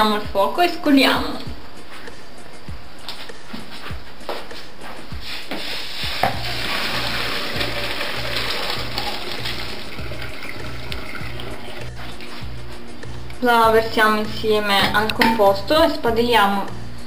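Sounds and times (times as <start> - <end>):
background music with steady beat: 0.0 - 17.0
water pouring into colander: 6.3 - 12.2.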